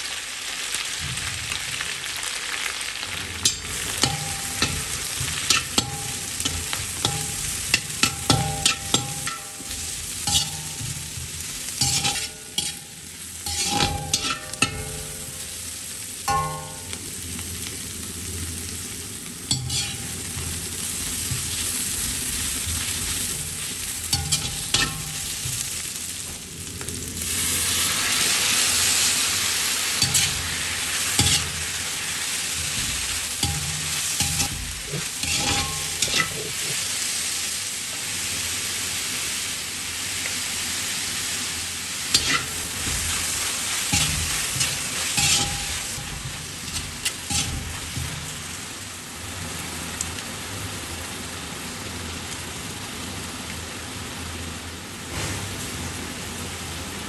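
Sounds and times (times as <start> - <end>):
vegetables sizzling in hot oil: 0.0 - 57.0
metal spatula scraping a pan: 3.4 - 15.6, 19.5 - 21.9, 23.1 - 25.7, 29.8 - 36.9, 42.1 - 48.6.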